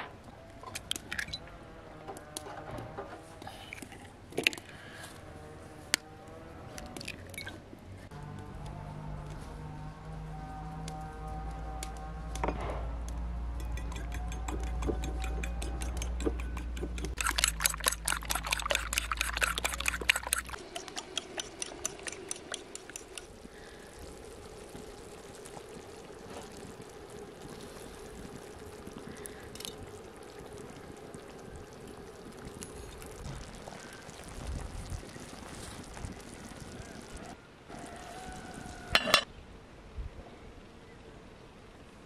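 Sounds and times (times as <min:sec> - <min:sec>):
fork beating eggs in bowl: 0:13.6 - 0:23.3
eggs poured into pan: 0:13.7 - 0:37.1
sauce cooking in a pan: 0:13.7 - 0:39.0.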